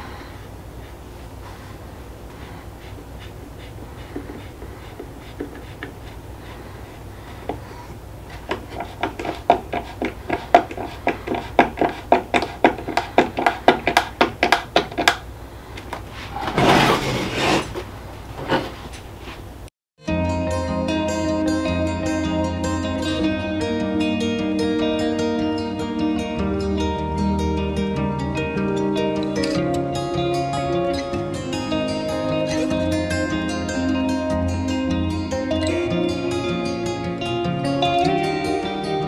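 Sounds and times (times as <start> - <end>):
short scraping rub: 0.8 - 13.6, 16.0 - 19.5.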